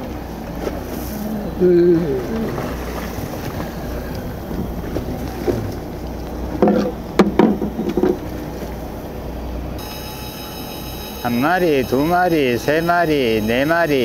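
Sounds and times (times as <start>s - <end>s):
boat engine rumble: 0.0s - 14.0s
water: 0.0s - 14.0s
wind: 0.0s - 14.0s
sharp knocks and clatter: 6.5s - 8.3s.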